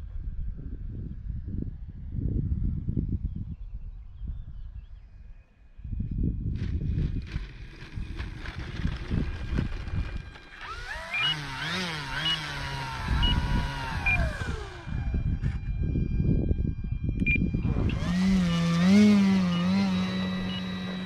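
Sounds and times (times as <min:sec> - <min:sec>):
wind buffeting microphone: 0:00.0 - 0:21.0
electric motor and propeller whine: 0:06.5 - 0:21.0
short high beeps: 0:17.2 - 0:18.1.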